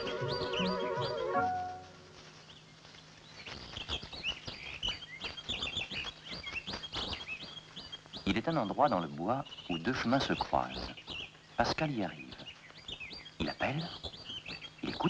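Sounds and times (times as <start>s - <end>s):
song music: 0.0s - 2.2s
birds chirping: 0.0s - 15.0s
soft patter of clicks: 2.0s - 8.6s.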